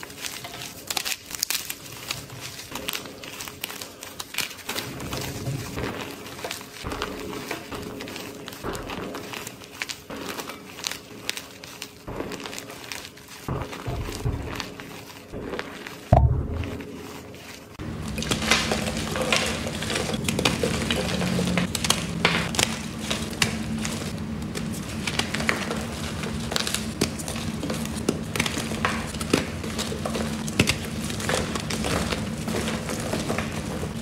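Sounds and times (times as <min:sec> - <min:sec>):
chalk crunching and crackling: 0:00.0 - 0:34.0
thump: 0:16.1 - 0:16.8.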